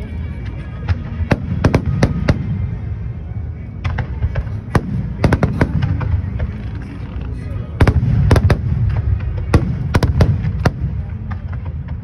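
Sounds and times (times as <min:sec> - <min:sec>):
fireworks bangs: 0:00.9 - 0:02.8, 0:03.8 - 0:06.9, 0:07.8 - 0:12.0.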